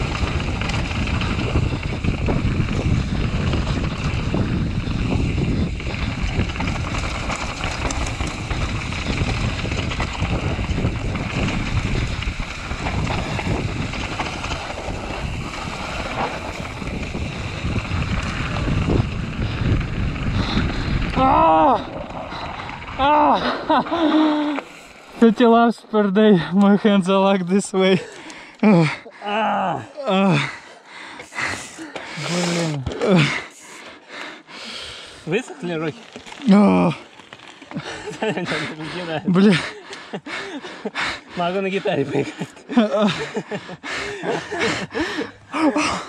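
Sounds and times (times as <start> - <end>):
wind buffeting microphone: 0.0 - 24.4
tyres rumbling and bike rattling: 0.0 - 46.0.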